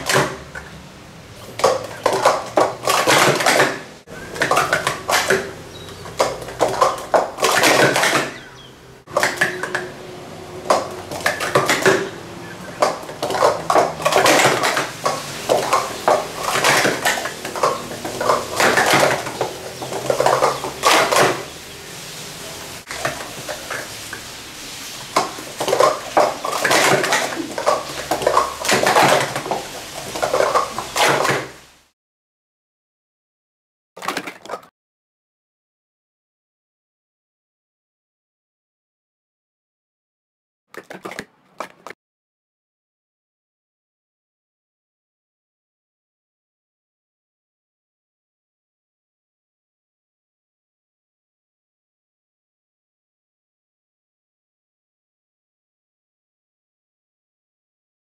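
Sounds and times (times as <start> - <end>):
plastic cups clattering: 0.0 - 0.8, 1.4 - 31.7, 34.0 - 34.7, 40.8 - 42.0.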